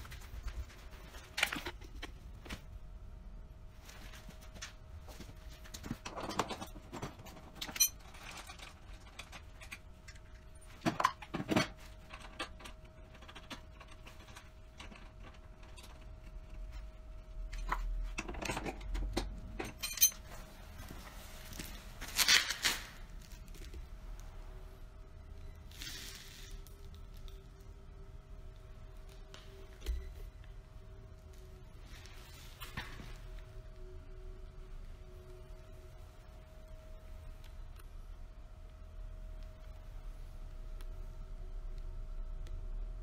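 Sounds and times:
metal tools clinking: 6.1s - 9.7s, 17.6s - 20.4s.

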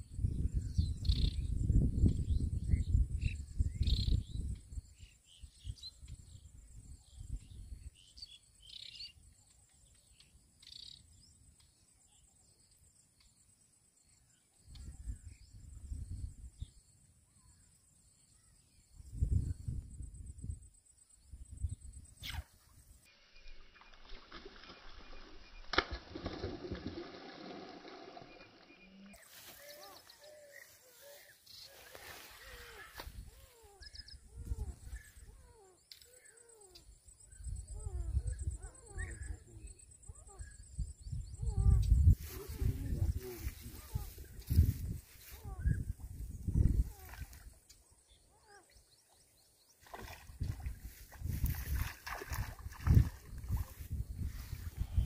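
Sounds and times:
fish splashing in water: 23.9s - 28.6s, 49.8s - 53.7s
sharp click: 25.7s - 26.1s
insect buzz: 26.1s - 38.4s, 40.3s - 48.8s, 49.8s - 55.0s
birds chirping: 28.2s - 55.0s.

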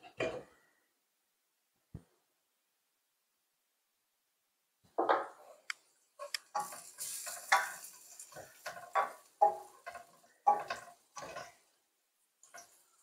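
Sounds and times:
spoon scraping metal pot: 6.2s - 11.7s
onions sizzling: 6.2s - 13.0s.

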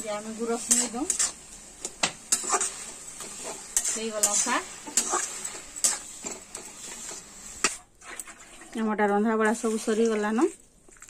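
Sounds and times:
spatula scraping metal pan: 0.1s - 8.7s.

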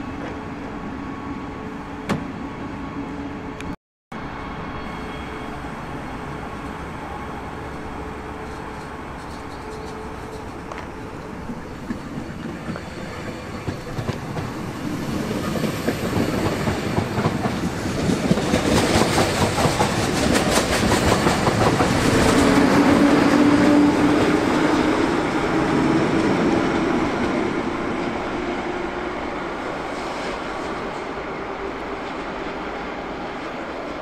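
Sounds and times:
locomotive hum: 0.0s - 34.0s
train passing: 0.0s - 34.0s.

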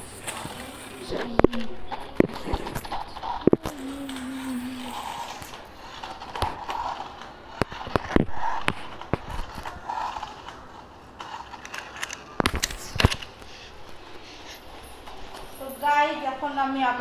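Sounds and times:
toy car motor whining: 0.0s - 13.6s.

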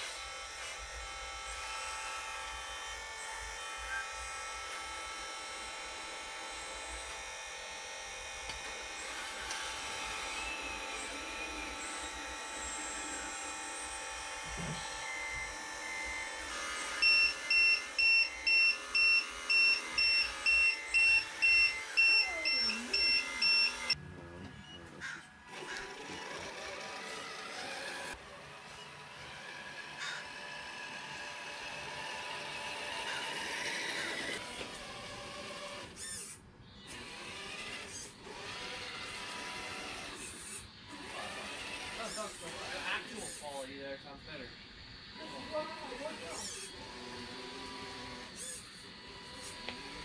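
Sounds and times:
electric motors whining: 0.0s - 50.0s
battery alarm beeping: 16.7s - 24.0s.

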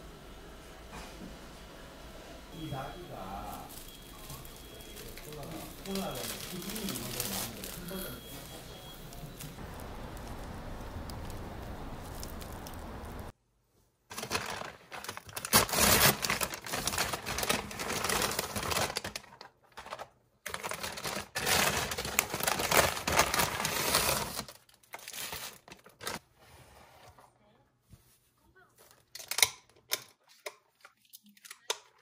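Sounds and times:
paper bag rustling and crinkling: 2.6s - 13.3s, 14.1s - 26.2s.

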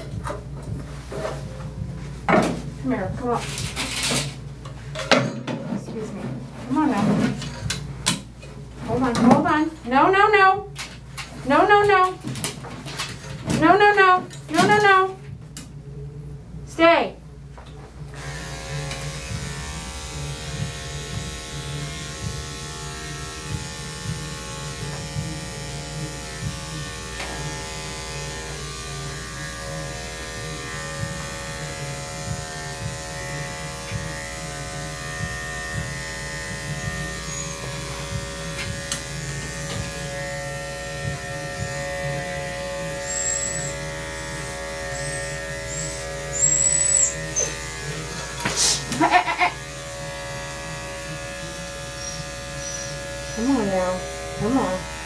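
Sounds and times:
electric clippers humming: 18.0s - 55.0s
high squeaks: 43.1s - 43.8s, 44.9s - 47.6s.

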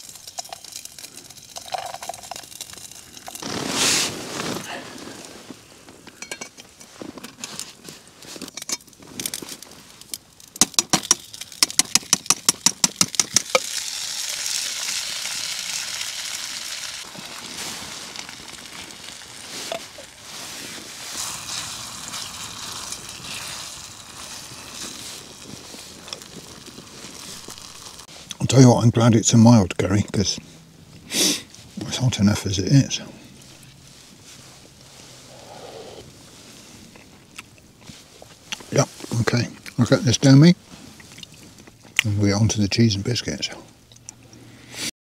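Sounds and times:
food sizzling in pan: 0.0s - 4.6s, 12.7s - 28.1s.

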